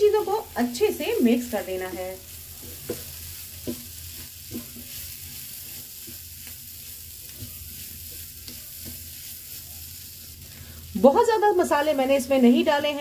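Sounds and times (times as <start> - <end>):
low frying sizzle: 0.0 - 13.0
wooden spatula scraping pan: 2.6 - 9.8.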